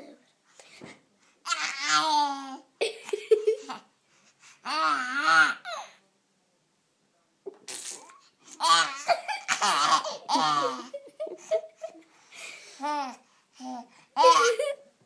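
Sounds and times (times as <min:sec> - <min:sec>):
baby giggling: 0:08.6 - 0:12.0, 0:14.2 - 0:14.8.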